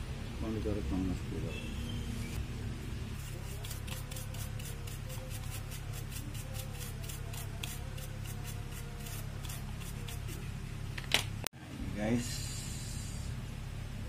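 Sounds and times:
stiff brush scrubbing circuit board: 0:03.2 - 0:10.5.

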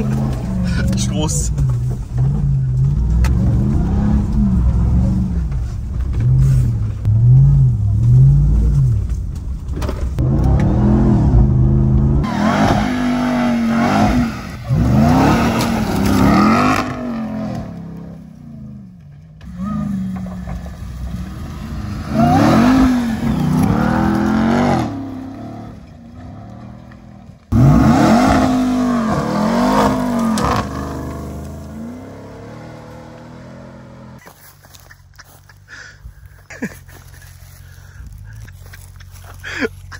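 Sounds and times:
engine revving hard under load: 0:10.2 - 0:18.1, 0:21.2 - 0:26.6, 0:27.5 - 0:34.2.

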